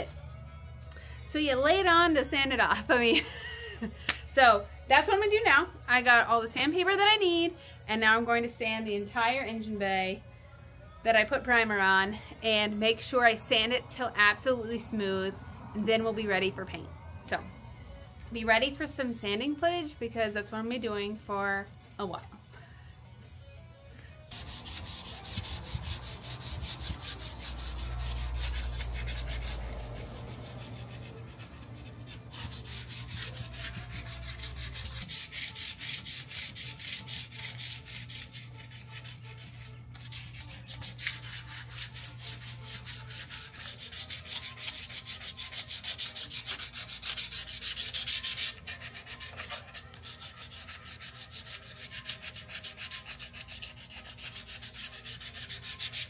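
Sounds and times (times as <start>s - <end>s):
sandpaper rubbing on sheet metal: 24.3s - 56.0s.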